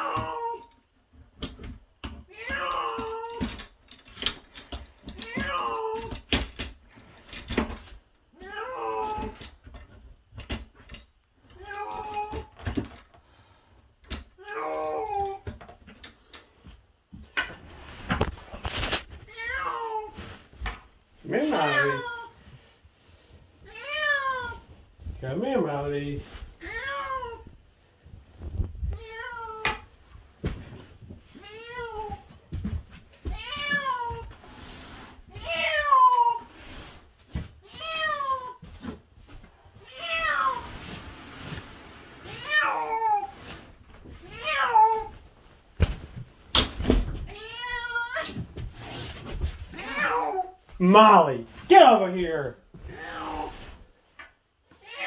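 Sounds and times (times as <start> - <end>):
scuffling and rustling: 16.5 - 54.1
cat meowing: 21.4 - 22.4, 23.6 - 24.7, 28.9 - 29.8, 42.3 - 43.5, 44.2 - 45.2, 47.3 - 48.4.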